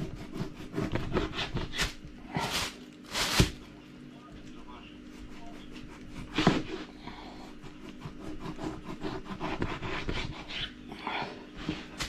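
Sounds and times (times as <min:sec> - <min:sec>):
knife sawing through fat: 0:00.0 - 0:02.6, 0:05.2 - 0:10.8.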